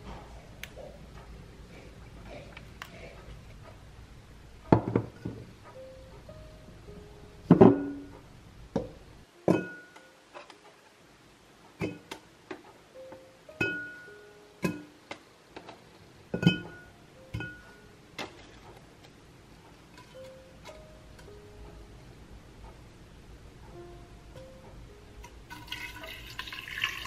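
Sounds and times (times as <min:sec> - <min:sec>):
plucked-string background music: 0:19.9 - 0:22.1, 0:23.6 - 0:27.0.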